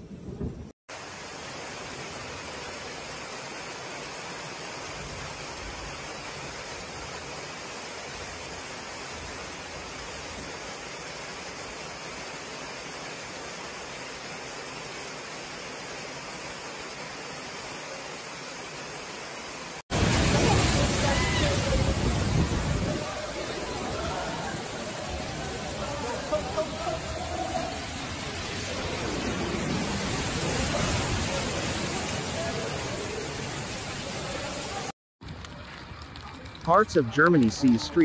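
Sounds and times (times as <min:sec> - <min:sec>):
floodwater rushing: 0:00.9 - 0:38.0.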